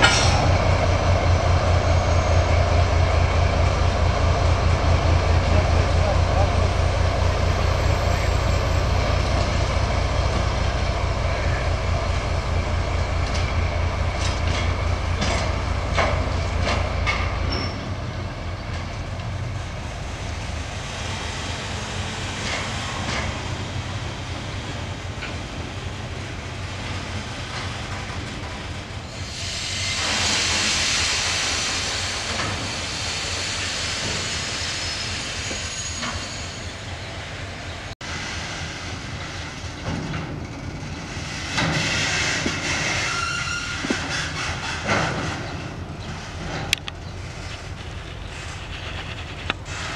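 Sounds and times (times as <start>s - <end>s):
diesel locomotive engine throb: 0.0s - 49.9s
air hiss: 29.2s - 35.7s.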